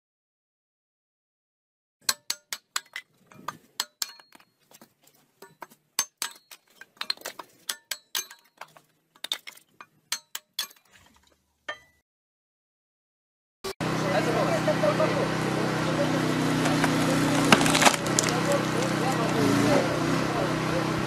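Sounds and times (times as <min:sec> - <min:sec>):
wood being split: 0:16.5 - 0:19.7.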